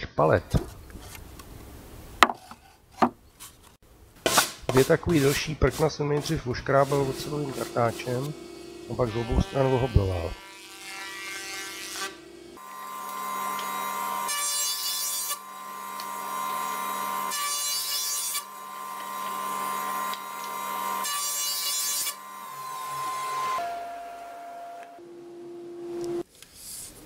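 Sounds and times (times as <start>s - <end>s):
planer cutting wood board: 4.3s - 25.0s
electric planer running: 7.2s - 14.4s, 15.3s - 17.4s, 18.4s - 21.1s.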